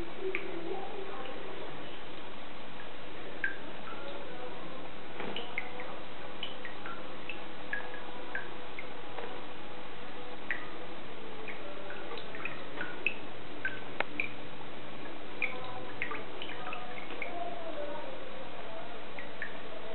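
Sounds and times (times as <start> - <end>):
tap water splashing: 5.2 - 9.4, 10.4 - 10.8, 11.4 - 14.4, 15.0 - 17.4
high dripping plinks: 11.4 - 14.4.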